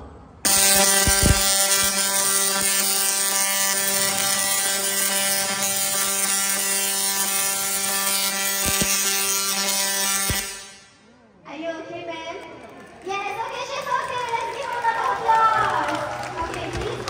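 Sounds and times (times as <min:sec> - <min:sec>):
crackling sparks: 0:00.5 - 0:11.0
tesla coil electric buzz: 0:00.5 - 0:11.1.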